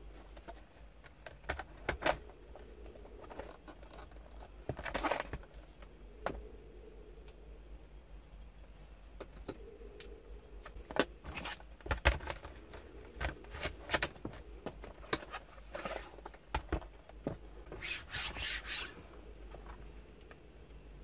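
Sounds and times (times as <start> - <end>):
plastic sliding rub: 17.7 - 19.1.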